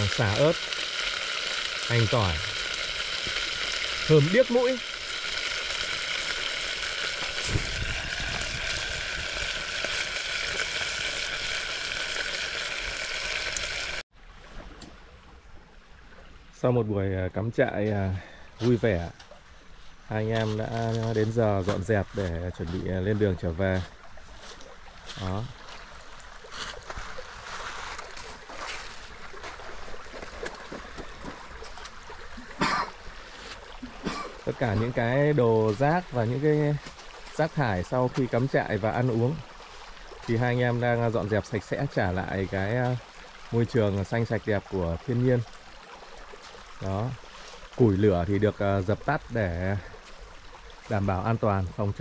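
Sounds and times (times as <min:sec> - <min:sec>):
beef sizzling in a hot pan: 0:00.0 - 0:14.0
stream water running: 0:00.0 - 0:52.0.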